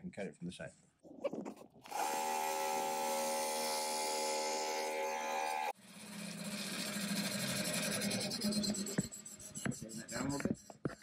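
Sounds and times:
bandsaw cutting: 0:01.8 - 0:09.4.

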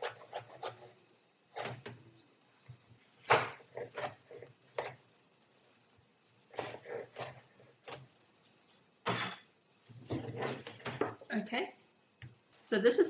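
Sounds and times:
knife chopping on cutting board: 0:00.0 - 0:00.9, 0:01.5 - 0:02.0, 0:03.2 - 0:05.0, 0:06.4 - 0:08.2, 0:10.0 - 0:11.1.

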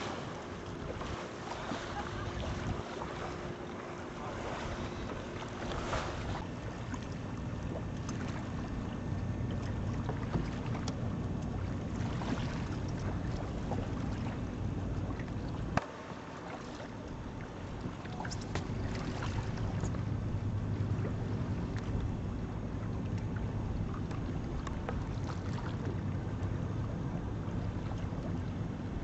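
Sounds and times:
water rushing along a hull: 0:00.0 - 0:29.0
wind buffeting microphone: 0:00.8 - 0:03.6.

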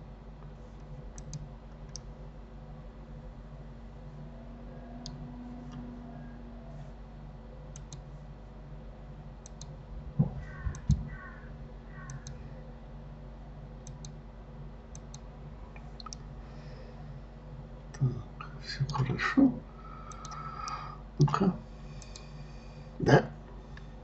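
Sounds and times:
low electrical hum: 0:00.0 - 0:24.0
computer mouse clicking: 0:00.8 - 0:02.1, 0:05.0 - 0:05.9, 0:07.7 - 0:08.1, 0:09.4 - 0:09.7, 0:10.5 - 0:11.4, 0:12.0 - 0:12.4, 0:13.8 - 0:14.2, 0:14.9 - 0:15.2, 0:15.8 - 0:16.2, 0:20.1 - 0:20.8, 0:22.0 - 0:22.3
dull low thumps: 0:10.0 - 0:11.1.

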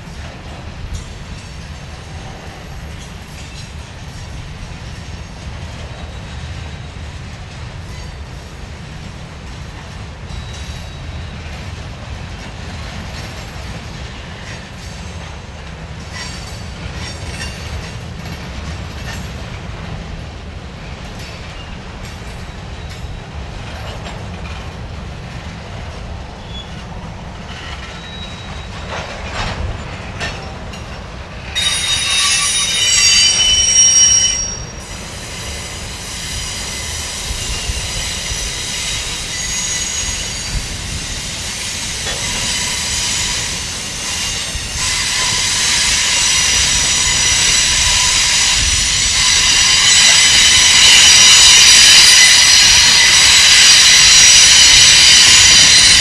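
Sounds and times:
high-pitched wheel squeal: 0:31.6 - 0:41.3, 0:42.0 - 0:56.0.

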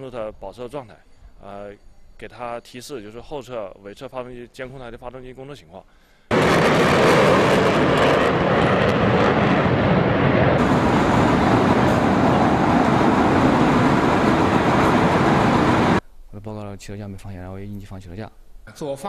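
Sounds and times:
jet engines roaring: 0:06.3 - 0:16.0.

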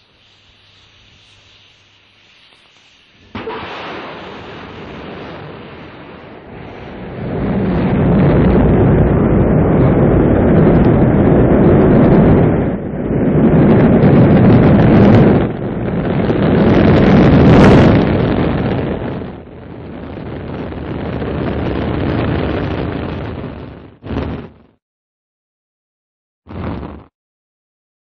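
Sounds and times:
rocket ignition blast: 0:00.0 - 0:24.6, 0:26.5 - 0:27.1
rocket launch roar: 0:03.2 - 0:24.7, 0:26.5 - 0:27.1.

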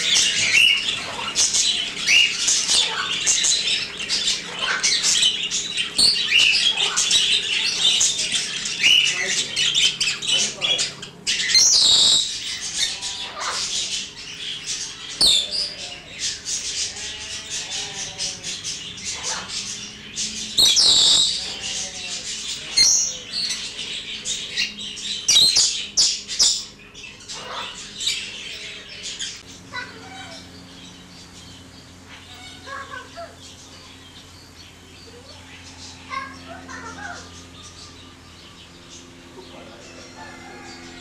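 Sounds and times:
loud bird squawks: 0:00.0 - 0:19.9, 0:20.6 - 0:30.8, 0:32.0 - 0:34.0
budgerigars chattering: 0:00.0 - 0:41.0.

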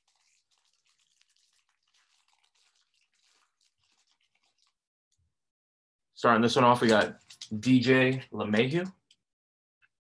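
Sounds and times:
foil wrapper crinkling and tearing: 0:00.0 - 0:04.8.

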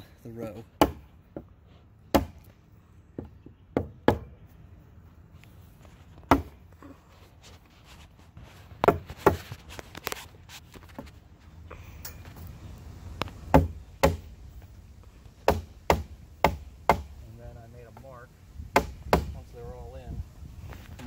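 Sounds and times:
hammer knocking on wood: 0:03.2 - 0:04.4, 0:13.5 - 0:14.2, 0:15.4 - 0:17.1, 0:18.7 - 0:19.4.

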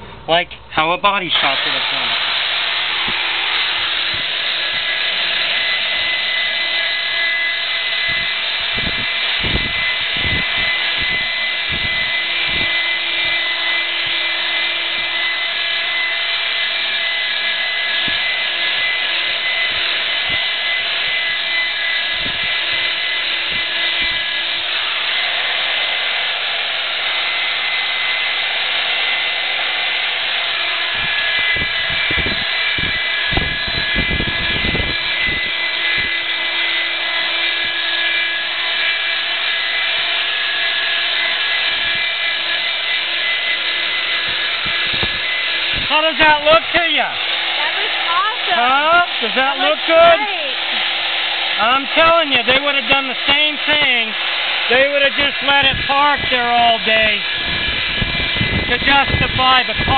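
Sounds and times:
electric polisher motor whine: 0:00.0 - 0:59.9.

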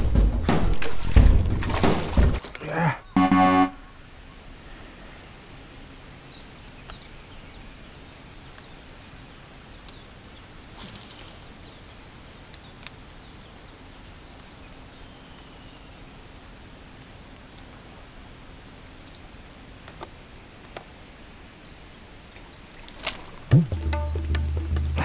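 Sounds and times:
bird chirping: 0:03.0 - 0:04.0
faint clicks: 0:18.8 - 0:20.9.

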